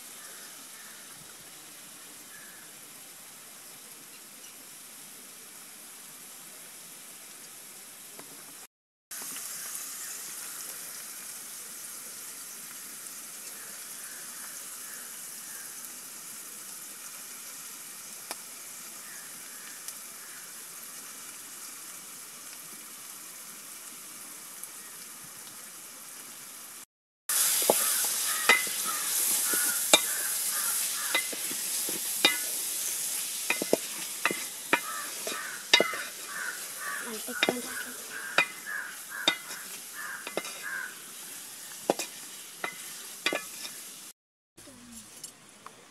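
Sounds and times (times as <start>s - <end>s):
curry sizzling in oil: 0.0s - 44.2s
spoon scraping a pot: 27.7s - 32.6s, 33.5s - 40.8s, 41.9s - 43.8s.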